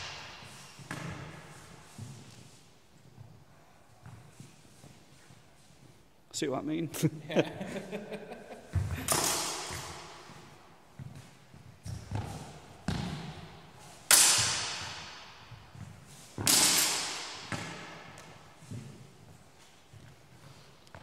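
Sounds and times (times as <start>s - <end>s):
footsteps thumping on hall floor: 8.6s - 9.1s.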